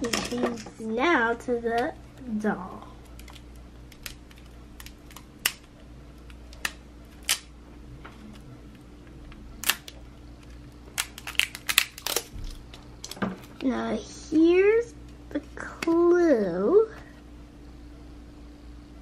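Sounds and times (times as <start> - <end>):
faint steady hum: 0.0 - 19.0
plastic wrapping crackling: 9.6 - 13.7.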